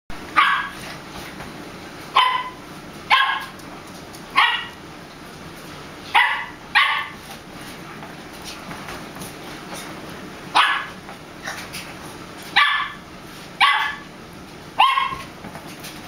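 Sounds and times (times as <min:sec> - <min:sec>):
small dog yapping: 0:00.4 - 0:00.8, 0:02.1 - 0:03.6, 0:04.3 - 0:04.8, 0:06.1 - 0:07.2, 0:10.5 - 0:11.0, 0:12.5 - 0:13.0, 0:13.6 - 0:14.1, 0:14.8 - 0:15.3.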